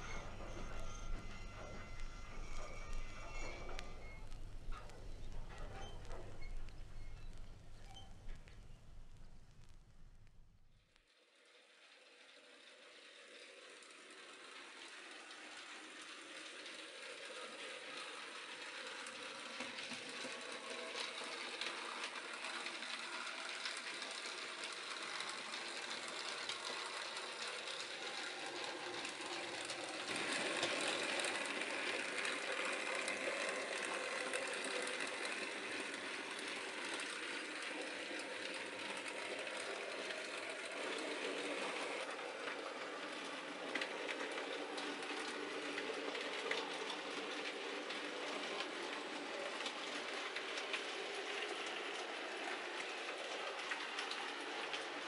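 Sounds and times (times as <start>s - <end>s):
wheels clicking over rail joints: 0.0s - 9.4s, 12.7s - 55.0s
model train motor whirring: 11.1s - 55.0s.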